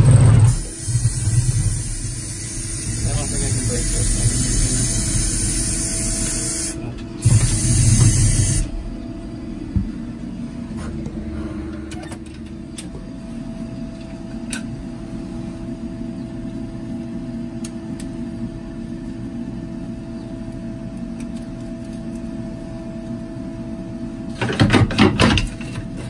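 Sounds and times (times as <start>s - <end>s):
loud hiss: 0.0s - 8.8s
machine hum: 0.0s - 26.0s.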